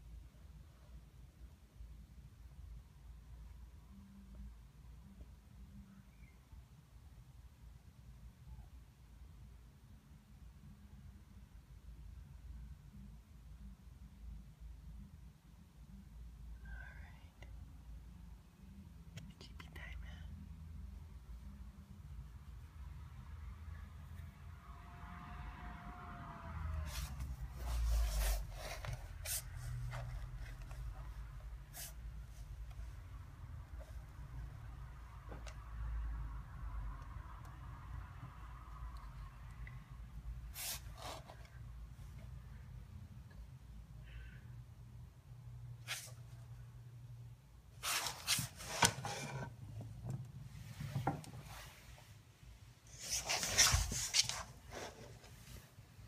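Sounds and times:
dog scraping and rustling on floor: 0:52.9 - 0:55.6.

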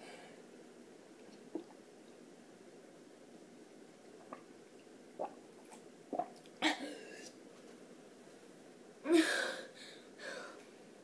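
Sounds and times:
person sipping and swallowing water: 0:01.2 - 0:01.8, 0:04.1 - 0:04.5, 0:05.2 - 0:06.5.

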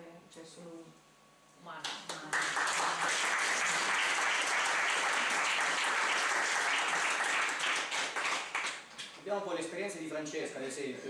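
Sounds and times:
audience applauding: 0:02.1 - 0:08.9.

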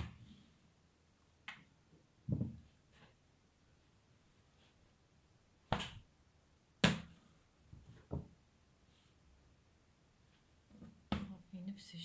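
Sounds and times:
hands slapping dough: 0:00.0 - 0:00.3, 0:05.6 - 0:06.1, 0:06.8 - 0:08.4.

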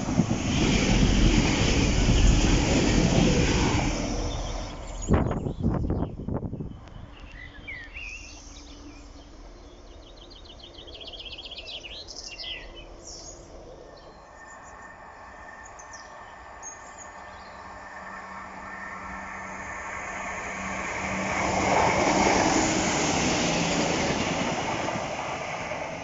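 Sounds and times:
train knocking: 0:00.0 - 0:04.8, 0:18.5 - 0:26.0
approaching train hum: 0:00.0 - 0:26.0.

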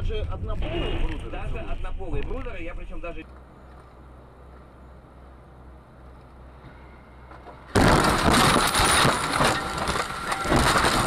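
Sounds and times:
road hum inside car: 0:00.0 - 0:07.9
loud crunching and knocking: 0:07.3 - 0:11.0
loud car crash impact: 0:07.7 - 0:11.0.

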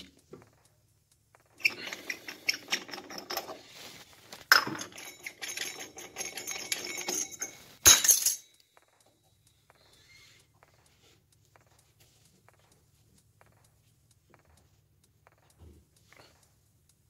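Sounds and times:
metallic clicks and rattles: 0:00.0 - 0:09.2
sharp metallic clink: 0:04.5 - 0:08.9.

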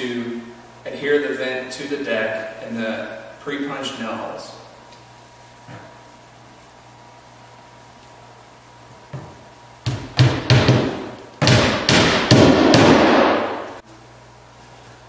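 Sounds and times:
hammer driving nails: 0:09.9 - 0:13.6.

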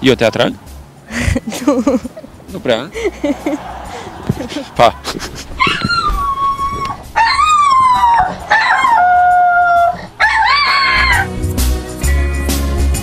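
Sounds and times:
dog howling: 0:05.6 - 0:11.3.

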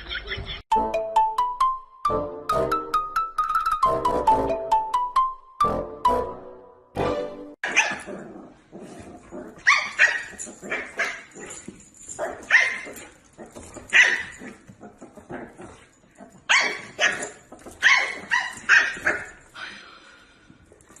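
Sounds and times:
dog barking: 0:07.6 - 0:08.1, 0:09.6 - 0:11.5, 0:13.9 - 0:14.4, 0:16.5 - 0:19.4.

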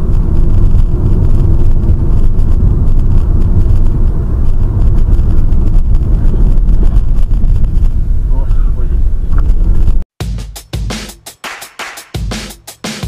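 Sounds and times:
car road and engine rumble: 0:00.0 - 0:10.1.

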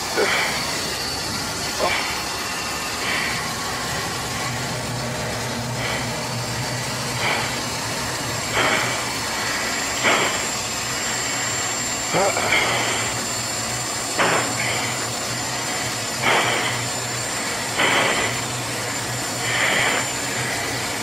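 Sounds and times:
sharp breaths through oxygen mask: 0:00.0 - 0:00.9, 0:01.8 - 0:03.6, 0:05.6 - 0:06.3, 0:07.1 - 0:07.7, 0:08.5 - 0:11.5, 0:14.1 - 0:18.6, 0:19.3 - 0:21.0
jet cockpit noise: 0:00.0 - 0:21.0.

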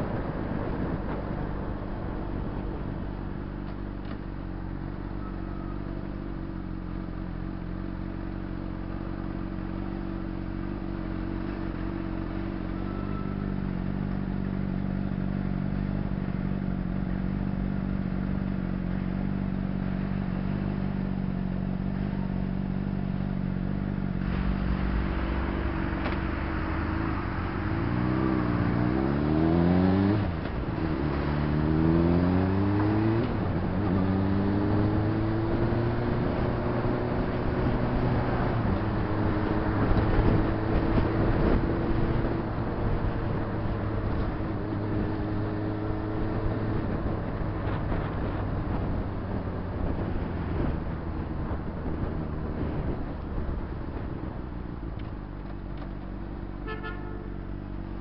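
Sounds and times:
motorcycle engine accelerating: 0:00.0 - 0:58.0
wind noise: 0:24.2 - 0:45.4, 0:46.0 - 0:55.8.

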